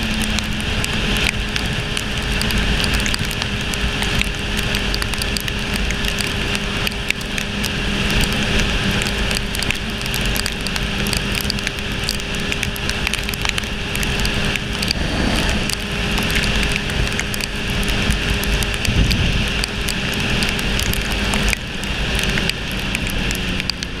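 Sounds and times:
motorcycle engine hum: 0:00.0 - 0:24.0
raindrops ticking on camera: 0:00.0 - 0:24.0
tyre spray on wet road: 0:00.0 - 0:24.0
wind rushing: 0:14.5 - 0:16.6.

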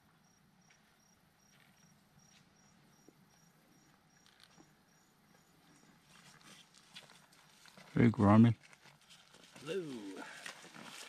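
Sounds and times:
insects chirping: 0:00.0 - 0:06.4.

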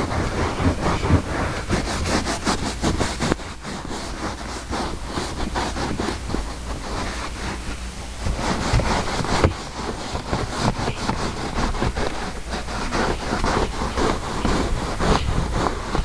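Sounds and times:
towel rubbing on carpet: 0:00.0 - 0:16.0.

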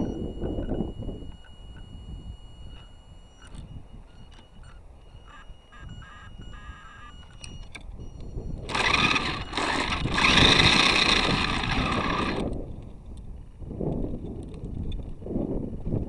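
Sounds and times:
rc car electric motor whine: 0:06.5 - 0:12.5.

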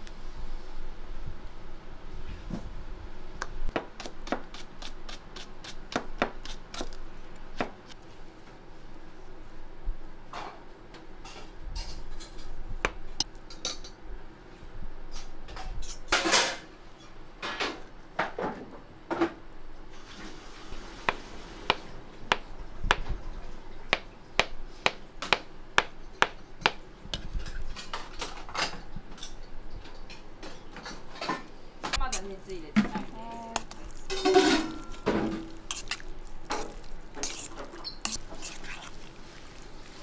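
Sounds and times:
dishes and utensils clinking: 0:27.3 - 0:38.9.

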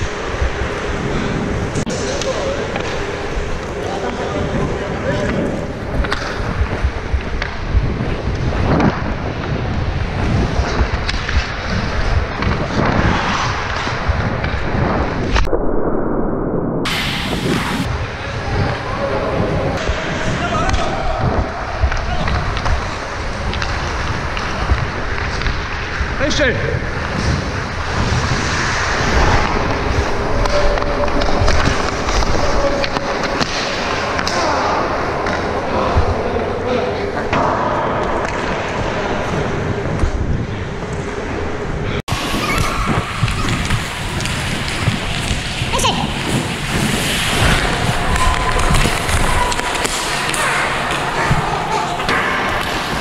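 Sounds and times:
wind on microphone: 0:00.0 - 0:02.0, 0:03.0 - 0:33.3, 0:38.0 - 0:53.0
ice skates scraping on ice: 0:00.0 - 0:15.3, 0:22.5 - 0:34.6, 0:40.8 - 0:53.0
hockey puck shot crack: 0:42.2 - 0:53.0.

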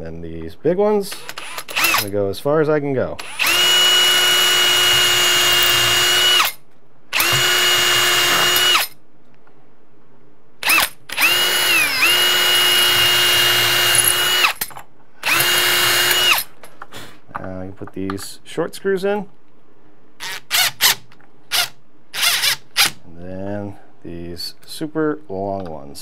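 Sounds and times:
cordless drill whining: 0:01.2 - 0:02.1, 0:03.2 - 0:09.0, 0:10.6 - 0:14.6, 0:15.2 - 0:16.5.

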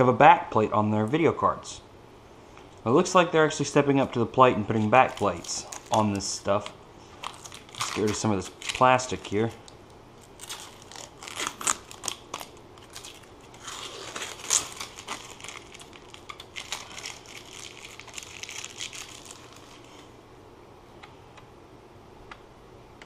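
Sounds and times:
plastic wrapping crinkling: 0:04.6 - 0:20.2.

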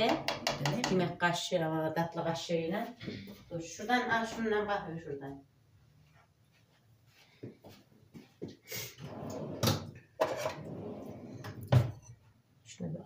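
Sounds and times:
dishes and utensils clattering: 0:10.2 - 0:10.7.

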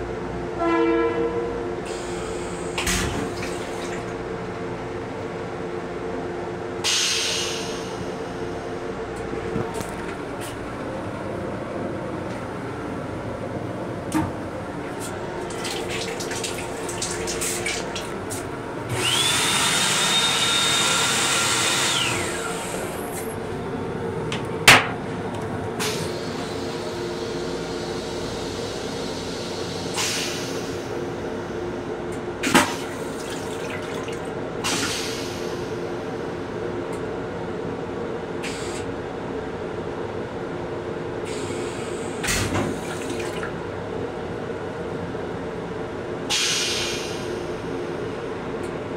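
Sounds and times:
train hum: 0:00.0 - 0:48.9
toilet flushing: 0:01.9 - 0:04.3, 0:14.9 - 0:23.1, 0:32.4 - 0:35.8, 0:41.3 - 0:43.6.

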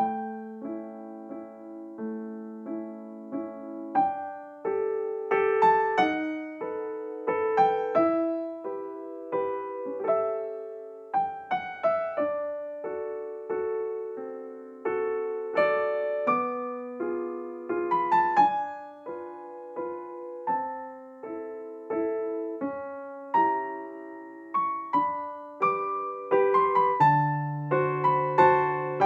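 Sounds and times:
gentle piano melody: 0:00.0 - 0:29.0.

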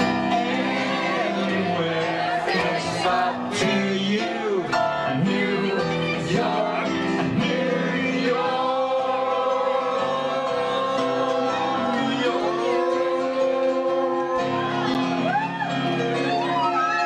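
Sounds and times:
song with man singing: 0:01.3 - 0:15.0.

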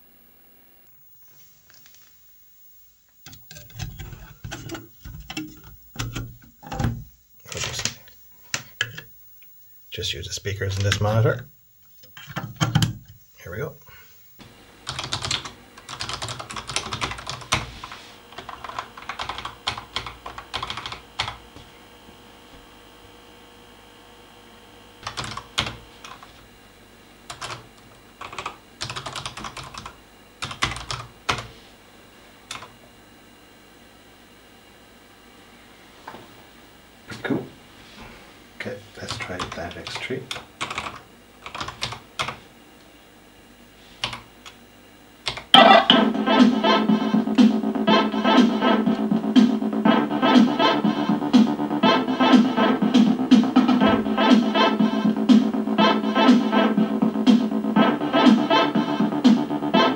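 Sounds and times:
keyboard typing: 0:14.9 - 0:17.6, 0:18.4 - 0:21.4, 0:25.0 - 0:26.2.

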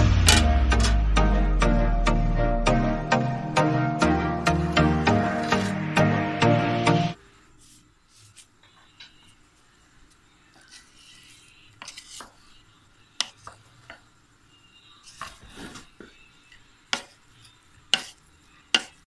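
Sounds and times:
spoon scraping rice in pot: 0:10.6 - 0:12.6, 0:16.9 - 0:19.0.

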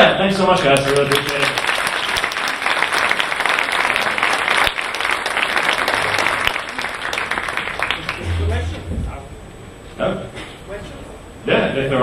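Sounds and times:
large audience applauding: 0:00.7 - 0:08.7.

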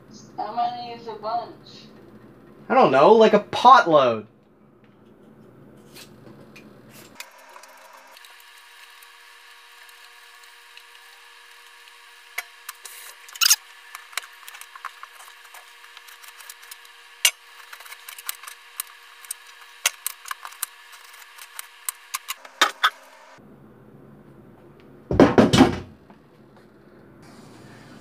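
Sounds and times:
vegetable peeler scraping potatoes: 0:10.8 - 0:23.1.

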